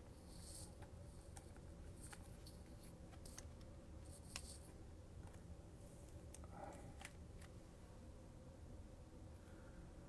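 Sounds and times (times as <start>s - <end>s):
card rustling against plastic: 0.3s - 4.8s.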